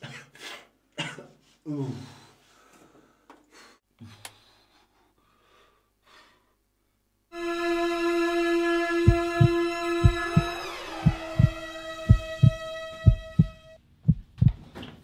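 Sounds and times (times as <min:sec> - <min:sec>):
sustained musical drone: 0:07.4 - 0:13.8.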